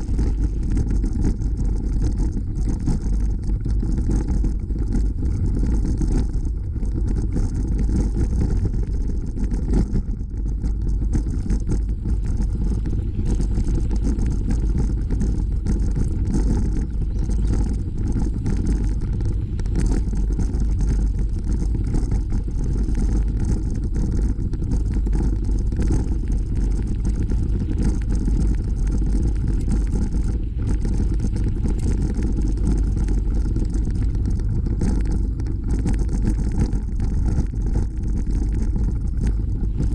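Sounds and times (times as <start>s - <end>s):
bicycle tyres rolling on dirt: 0.0s - 39.9s
wind buffeting microphone: 0.0s - 39.9s.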